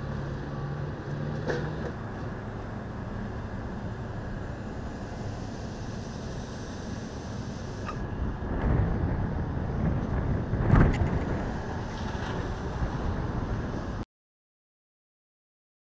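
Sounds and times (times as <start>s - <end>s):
wind rumbling on microphone: 7.7s - 14.0s.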